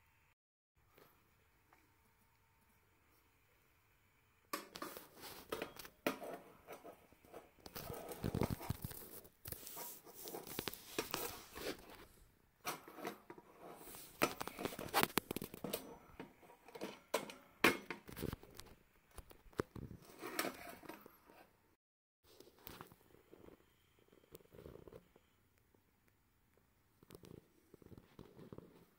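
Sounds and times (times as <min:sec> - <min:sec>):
metal part scraping in hand: 0:04.8 - 0:17.2, 0:20.0 - 0:21.5.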